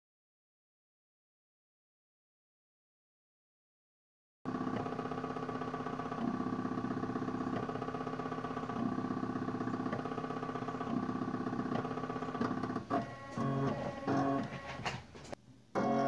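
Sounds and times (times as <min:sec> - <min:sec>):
stepper motors whining: 0:04.5 - 0:16.0.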